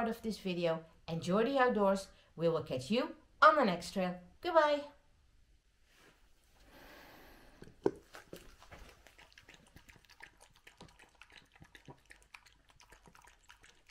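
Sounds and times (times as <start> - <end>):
dog lapping from bowl: 7.7 - 13.9.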